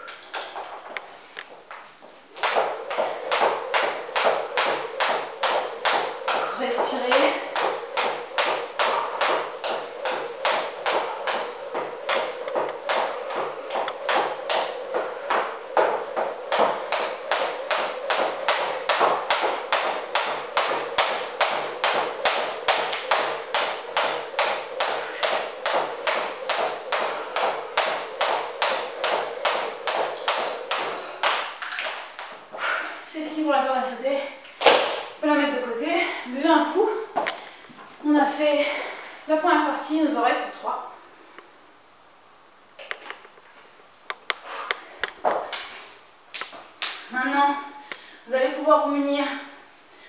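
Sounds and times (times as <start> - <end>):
skipping rope slapping wooden floor: 0.1 - 32.6, 34.6 - 35.2, 45.0 - 47.2
short high electronic beep: 30.2 - 31.3.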